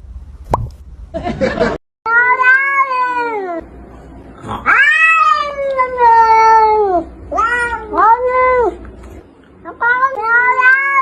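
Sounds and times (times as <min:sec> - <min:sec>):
cat yowling: 0:02.1 - 0:03.6, 0:04.6 - 0:08.8, 0:09.7 - 0:11.0.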